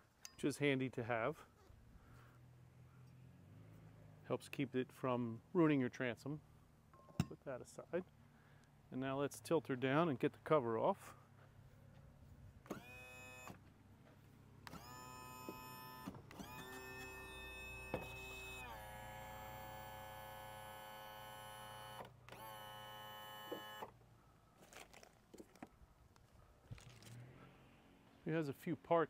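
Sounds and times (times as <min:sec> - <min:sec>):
tilt and trim motor whining: 0:12.6 - 0:13.6, 0:14.6 - 0:24.0.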